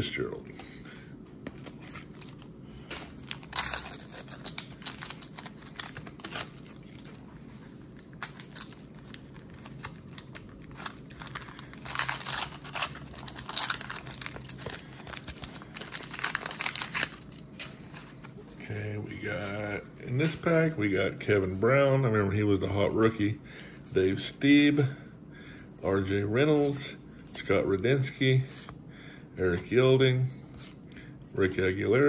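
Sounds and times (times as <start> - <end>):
wax paper wrapper tearing and crinkling: 2.1 - 18.2.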